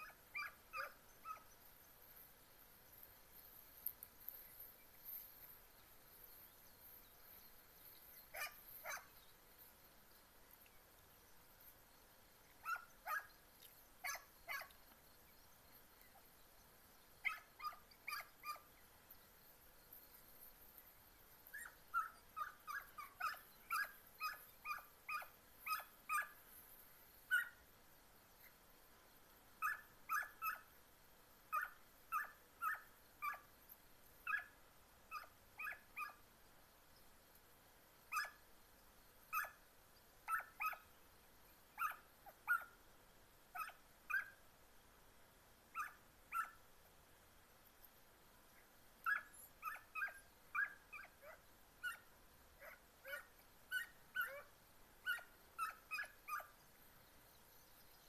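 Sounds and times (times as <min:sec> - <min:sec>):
hounds yelping barks: 0:00.0 - 0:01.6, 0:08.3 - 0:09.2, 0:12.5 - 0:13.4, 0:14.0 - 0:14.8, 0:17.2 - 0:18.8, 0:21.4 - 0:26.4, 0:27.3 - 0:27.6, 0:29.6 - 0:30.8, 0:31.5 - 0:33.5, 0:34.2 - 0:36.3, 0:38.1 - 0:38.4, 0:39.3 - 0:39.6, 0:40.2 - 0:41.0, 0:41.8 - 0:42.8, 0:43.6 - 0:44.4, 0:45.7 - 0:46.6, 0:49.0 - 0:56.6.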